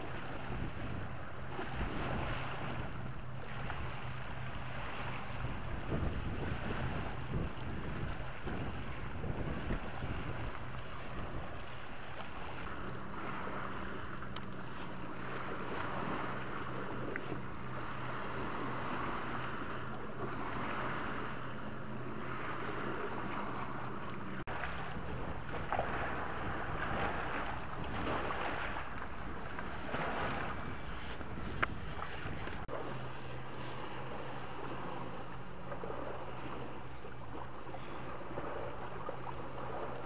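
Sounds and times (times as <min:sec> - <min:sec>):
low steady hum: 0:00.0 - 0:40.0
wind on microphone: 0:00.0 - 0:40.0
waves washing against rocks: 0:24.4 - 0:32.7.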